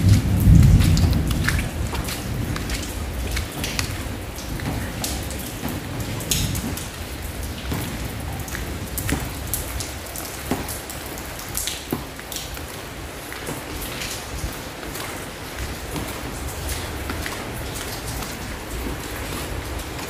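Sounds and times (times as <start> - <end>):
rain falling: 0.0 - 20.0
water dripping on tiles: 0.0 - 20.0.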